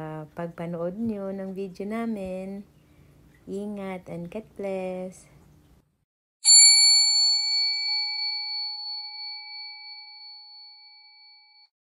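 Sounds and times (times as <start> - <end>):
bell-like chime ringing: 6.4 - 11.7.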